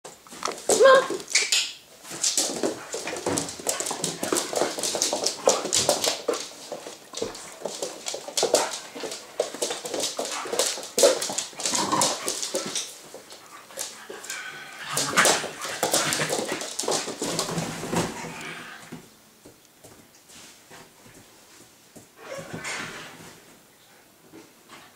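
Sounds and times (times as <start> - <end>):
claws on wooden floor: 0.1 - 20.1.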